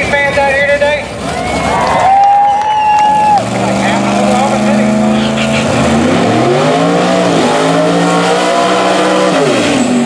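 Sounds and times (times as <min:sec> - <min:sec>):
race car engine revving: 0:03.0 - 0:10.0.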